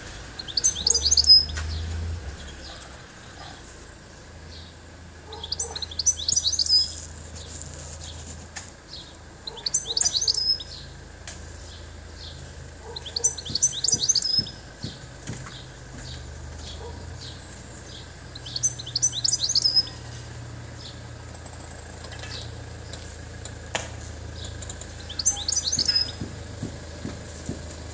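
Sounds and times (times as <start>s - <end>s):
goldfinch twittering song: 0.3s - 2.8s, 4.5s - 8.2s, 8.9s - 10.9s, 11.7s - 20.1s, 24.4s - 26.3s.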